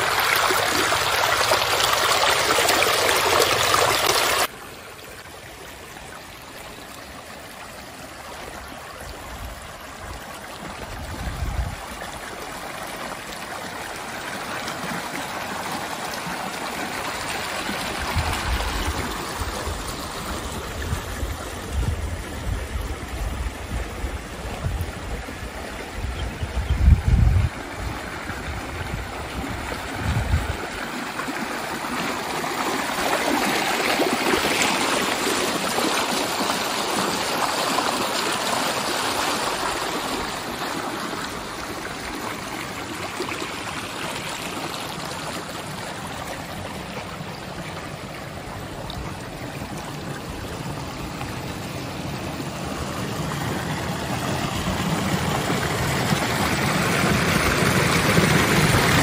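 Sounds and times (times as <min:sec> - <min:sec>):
water running and gurgling: 0:00.0 - 0:59.0.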